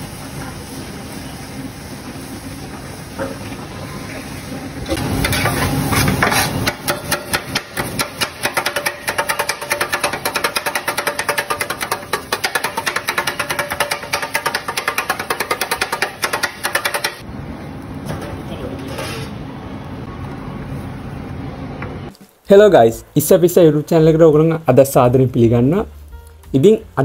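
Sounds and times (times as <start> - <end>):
metal blades striking griddle: 4.9 - 17.2.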